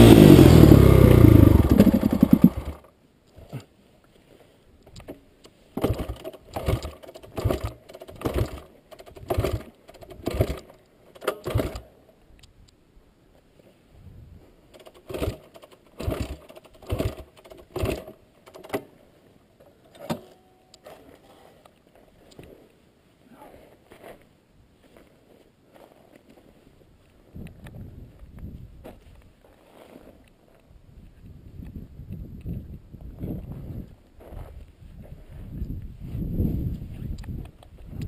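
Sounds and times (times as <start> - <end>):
dirt bike clattering strokes: 0.0 - 2.9, 5.8 - 11.9, 14.7 - 19.0.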